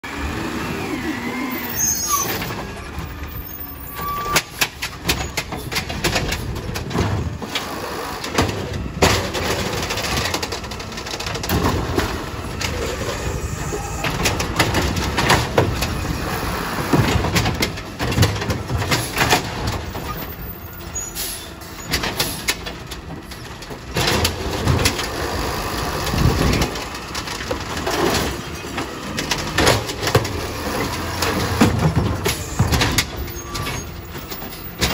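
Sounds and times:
carts clanking and banging: 0.0 - 34.9
diesel engine under load: 0.0 - 34.9.

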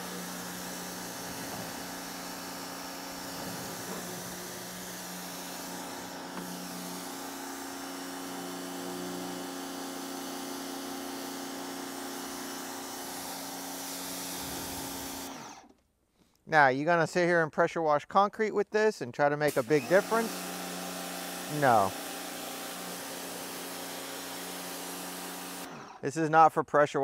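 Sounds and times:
high-pressure water spray hiss: 0.0 - 12.0, 12.6 - 15.4, 19.5 - 25.7
pressure washer motor humming: 0.0 - 15.7, 19.5 - 26.0.

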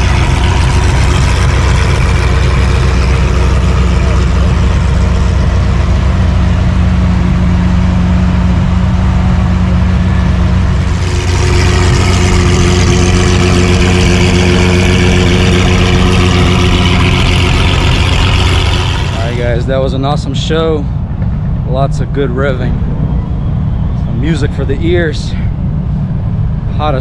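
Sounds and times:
car engine running: 0.0 - 27.0.

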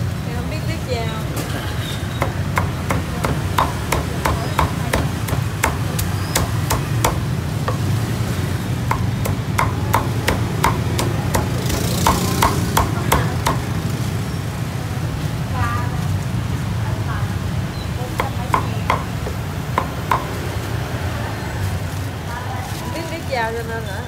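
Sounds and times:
cleaver chopping on wooden block: 2.2 - 8.1, 8.8 - 13.7, 18.2 - 20.4.

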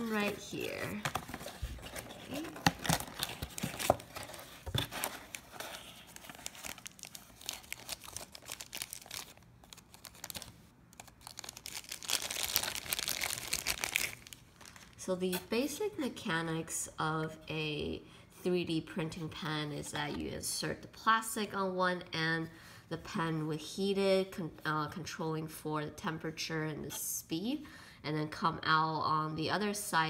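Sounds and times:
plastic wrapping crinkling: 0.0 - 15.0.

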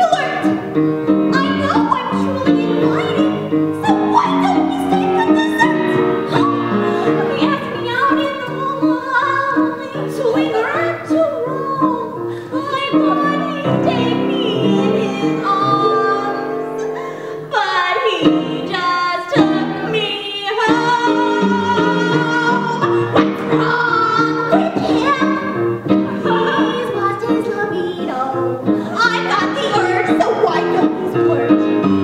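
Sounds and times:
woman singing: 1.2 - 32.0
instrumental accompaniment: 18.1 - 32.0.

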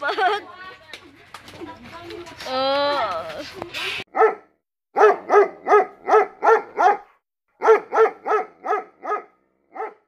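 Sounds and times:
dog barking: 4.1 - 10.0.

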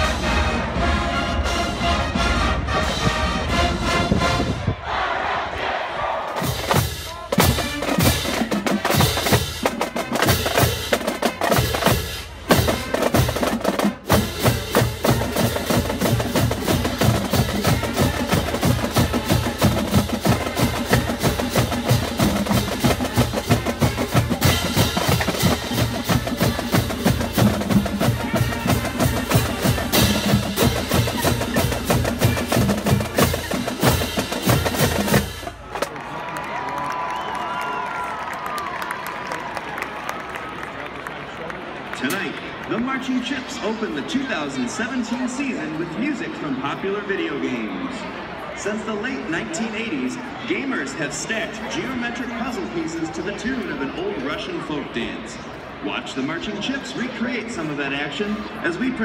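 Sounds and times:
marching band playing: 0.0 - 36.1
snare and bass drums: 6.3 - 35.9.

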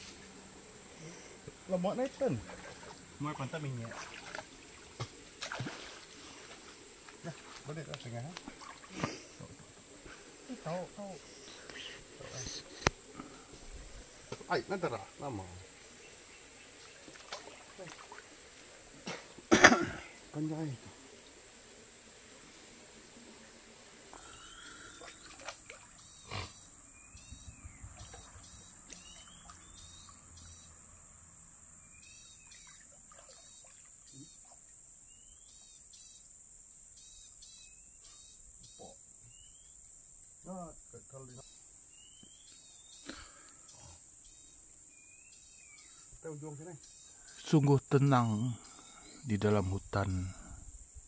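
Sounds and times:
high insect drone: 0.0 - 51.0
repeated chirping calls: 26.0 - 30.8.

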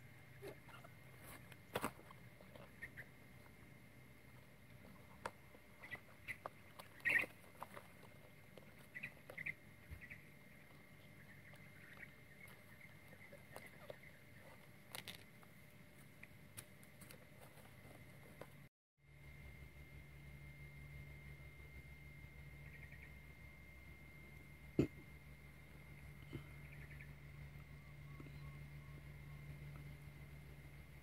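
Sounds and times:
crinkling and scraping of plant sheath: 10.7 - 18.7.

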